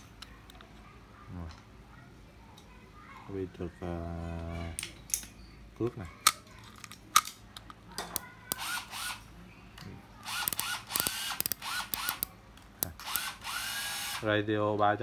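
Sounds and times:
fishing reel clicking and rattling: 0:10.3 - 0:12.3.

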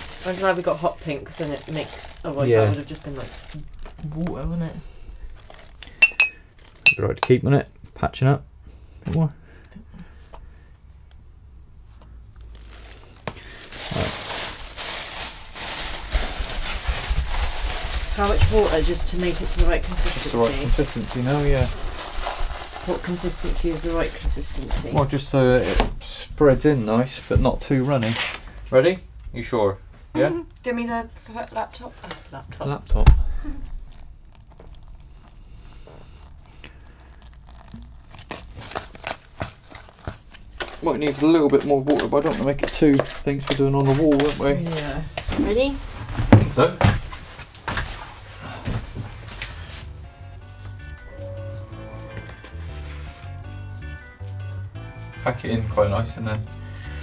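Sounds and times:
plastic bag crinkling: 0:00.0 - 0:07.2, 0:12.4 - 0:25.4, 0:33.3 - 0:45.9
grout crunching and squelching: 0:00.0 - 0:07.4, 0:12.4 - 0:25.8, 0:33.2 - 0:50.0
thud: 0:33.0 - 0:33.4.

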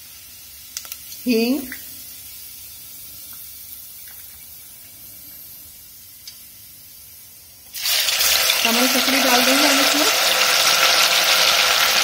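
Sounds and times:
spices sizzling in hot oil: 0:00.0 - 0:12.0
loud vigorous sizzling: 0:01.2 - 0:12.0.

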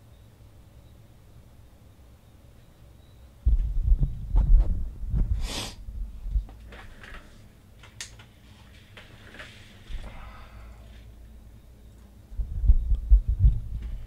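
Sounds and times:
breathy sniff: 0:05.4 - 0:05.8.

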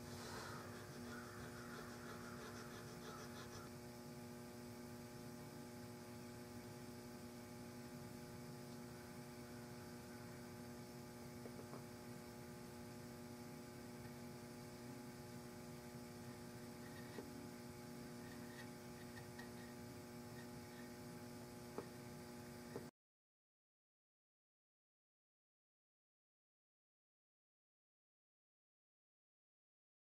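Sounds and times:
faint electrical mains hum: 0:00.0 - 0:22.9.

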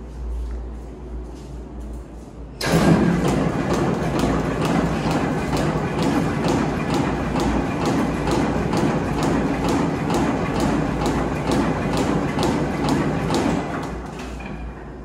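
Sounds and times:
machinery humming: 0:00.0 - 0:15.0
regular clacking knock: 0:03.1 - 0:14.0.

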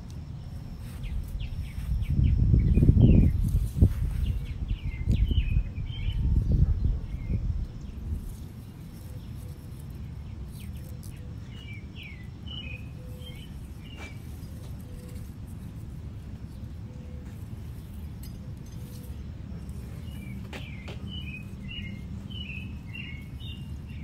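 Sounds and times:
low outdoor rumble: 0:00.0 - 0:24.0
bird chirps: 0:00.8 - 0:15.3, 0:16.4 - 0:24.0
leaves being handled clicks: 0:08.1 - 0:11.8, 0:12.5 - 0:24.0.

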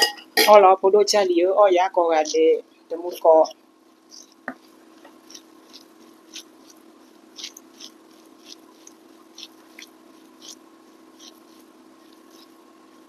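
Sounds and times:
steady low hum: 0:00.0 - 0:13.0
wet eating clicks and smacks: 0:04.1 - 0:10.6.

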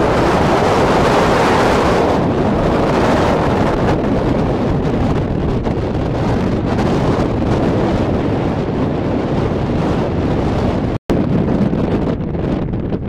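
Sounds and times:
strong wind buffeting microphone: 0:00.0 - 0:13.0.

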